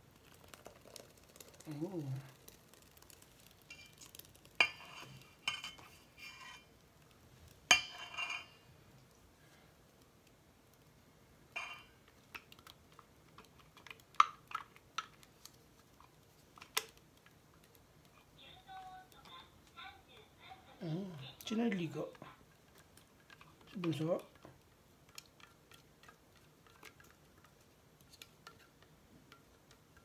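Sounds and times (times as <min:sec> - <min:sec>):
liquid pouring: 0:00.0 - 0:05.5.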